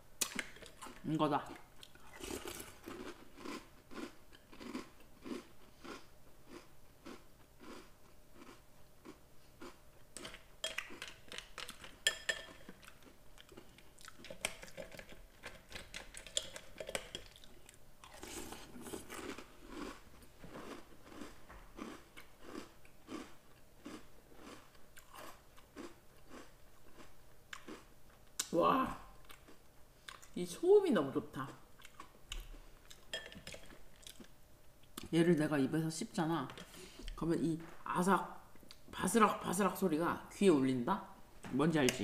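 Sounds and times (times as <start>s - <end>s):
chewing crunchy cereal: 1.8s - 27.9s, 31.8s - 35.1s.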